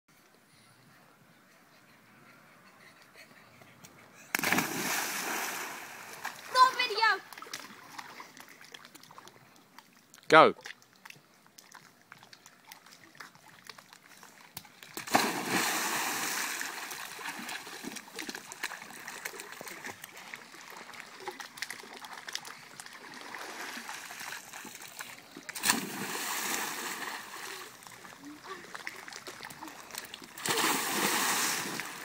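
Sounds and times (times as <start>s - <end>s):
splash into pool: 4.3s - 6.6s, 15.0s - 20.0s, 21.2s - 27.6s, 30.0s - 32.0s
water washing and slapping: 15.0s - 27.7s, 28.6s - 32.0s.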